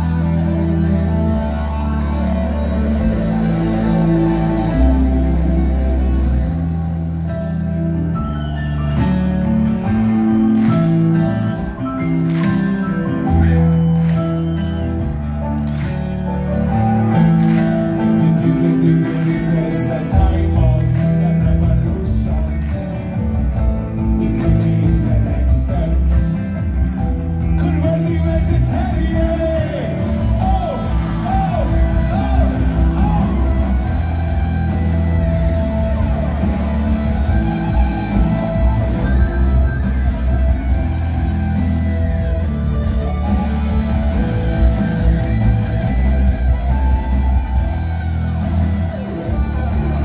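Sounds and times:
bass line: 0.0s - 50.0s
drums: 0.0s - 50.0s
guitar: 0.0s - 50.0s
person singing: 17.3s - 23.0s.

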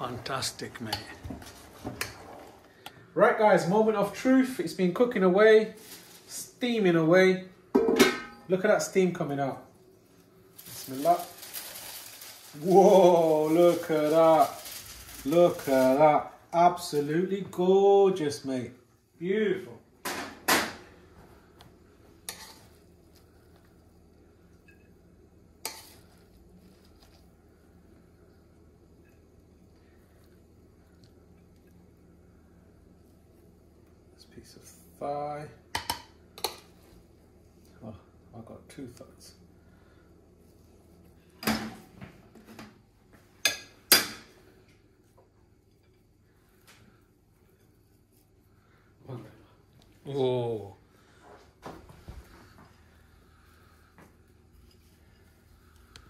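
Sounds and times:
kitchenware clattering: 7.8s - 8.5s
faint low hum: 20.7s - 56.0s.

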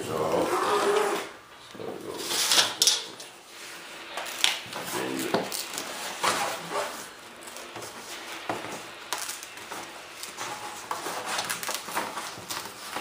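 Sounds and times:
knife scratching sheet: 5.8s - 7.1s, 9.7s - 13.0s.

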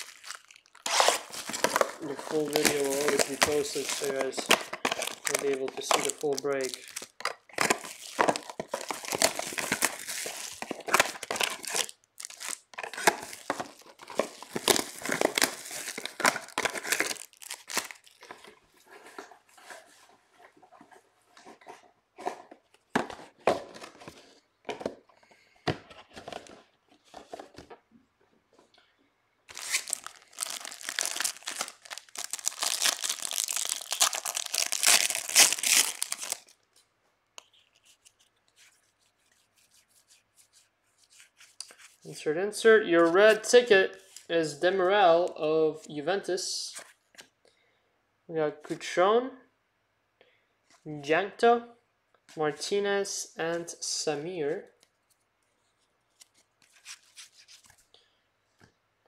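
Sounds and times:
wrappers crinkling and tearing: 0.0s - 18.5s, 29.5s - 36.7s.

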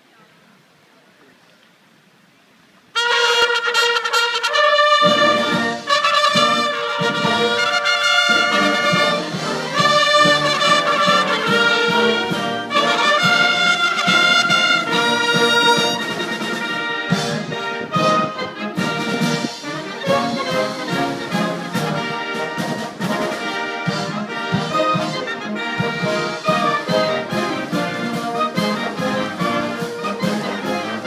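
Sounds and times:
bugles playing: 2.9s - 31.0s
military brass band playing: 2.9s - 31.0s.

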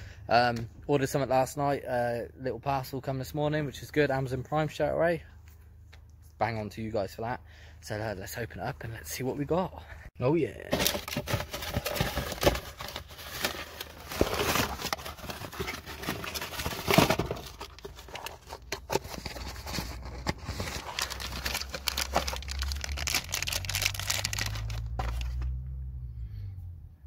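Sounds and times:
cardboard tearing: 10.7s - 25.4s
packaging crinkling: 10.7s - 25.4s.

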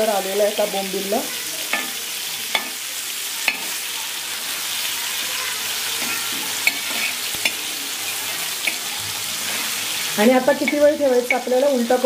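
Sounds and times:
fish sizzling in oil: 0.0s - 12.0s
spatula scraping pan: 5.1s - 11.7s.

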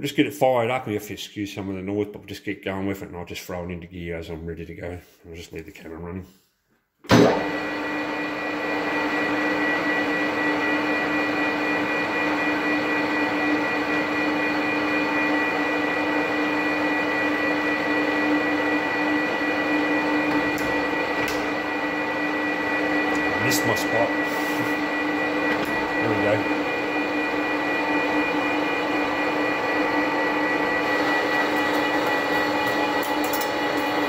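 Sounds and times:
metal lathe whining: 10.0s - 34.0s.

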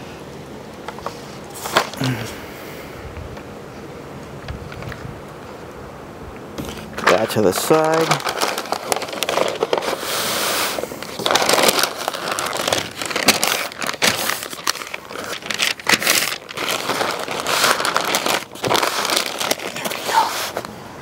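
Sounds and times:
paper crinkling and rustling: 0.9s - 2.2s, 6.6s - 20.8s.

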